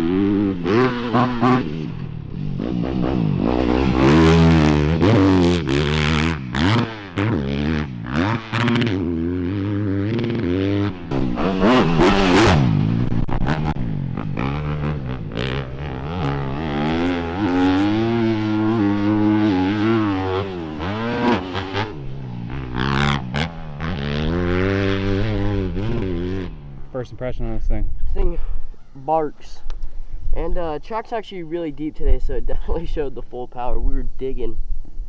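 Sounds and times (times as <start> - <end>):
motocross bike engine revving: 0.0 - 28.5.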